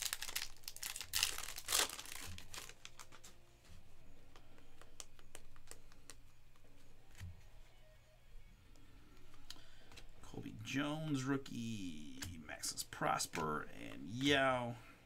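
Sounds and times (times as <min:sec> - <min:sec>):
foil wrappers crinkling and tearing: 0:00.0 - 0:03.3
cards clicking: 0:04.3 - 0:07.3.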